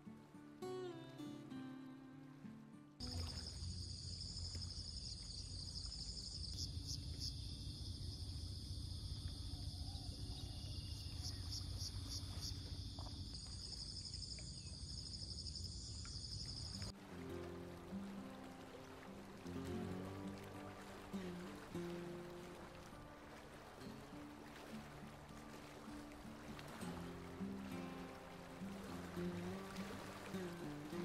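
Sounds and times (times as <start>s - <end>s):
guitar music: 0.0s - 3.2s, 16.9s - 31.0s
insect chorus trilling: 3.0s - 16.9s.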